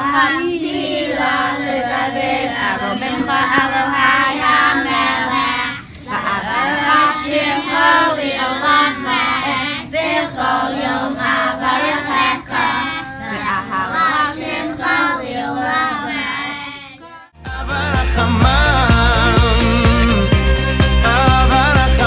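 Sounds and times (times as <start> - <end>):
children chanting prayers: 0.0 - 17.4
music: 17.4 - 22.0.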